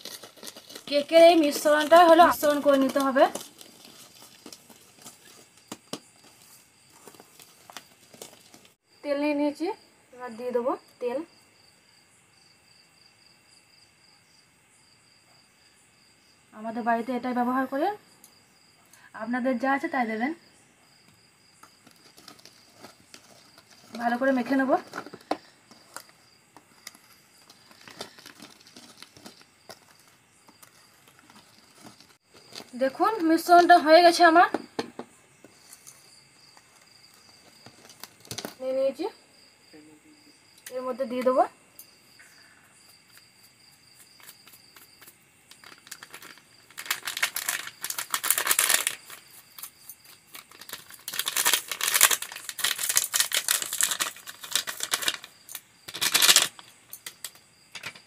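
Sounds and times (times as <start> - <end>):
plastic packet crinkling: 0.0 - 8.8, 26.7 - 32.9, 45.5 - 57.4.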